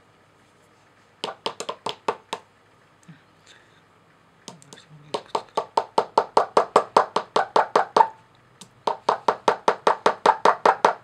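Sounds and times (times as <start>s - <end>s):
pick tapping plaster: 1.2s - 2.5s, 4.5s - 11.0s.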